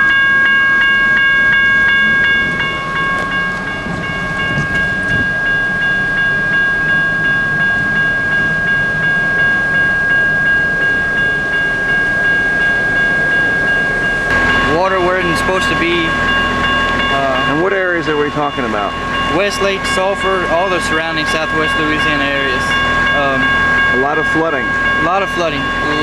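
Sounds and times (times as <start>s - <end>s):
wind and rain rumble: 1.9s - 8.0s.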